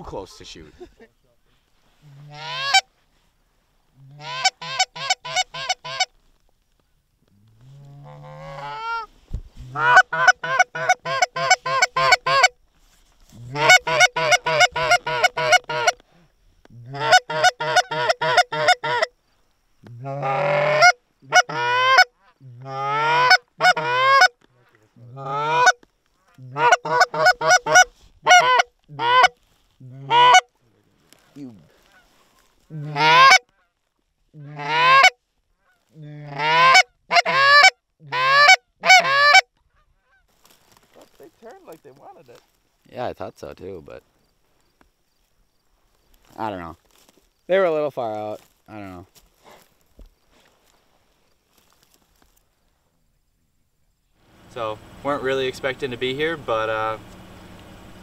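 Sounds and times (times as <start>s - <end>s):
goose calls honking: 2.2s - 2.9s, 4.1s - 6.1s, 8.0s - 9.1s, 9.7s - 12.6s, 13.5s - 16.0s, 16.9s - 19.1s, 20.0s - 24.4s, 25.1s - 30.5s, 32.8s - 33.7s, 34.4s - 40.2s.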